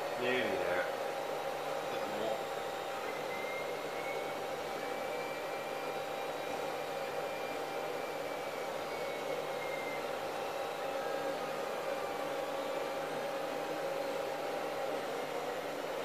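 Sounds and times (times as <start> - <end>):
constant machine hum: 0.0 - 16.0
faint high whine: 0.0 - 16.0.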